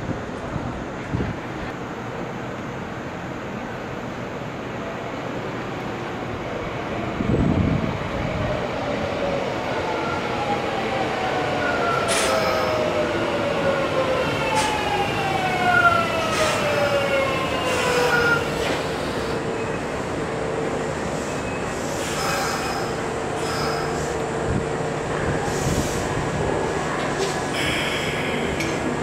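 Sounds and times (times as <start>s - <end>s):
train wheel rumble: 0.0s - 29.0s
train clunks: 11.9s - 13.0s, 17.6s - 20.0s, 25.2s - 29.0s.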